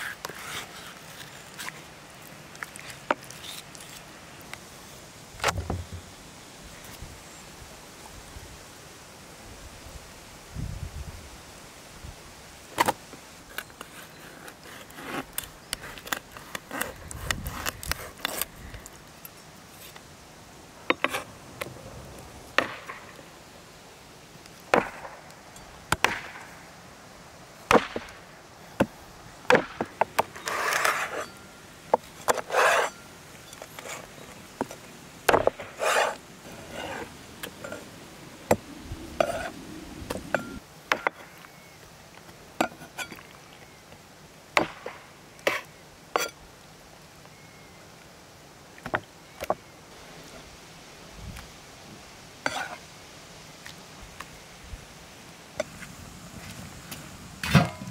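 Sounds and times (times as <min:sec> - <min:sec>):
knife scraping along wood: 0:00.0 - 0:01.8, 0:02.5 - 0:04.1, 0:13.7 - 0:18.8, 0:30.1 - 0:33.0, 0:33.6 - 0:34.4, 0:35.3 - 0:37.9, 0:39.2 - 0:39.6.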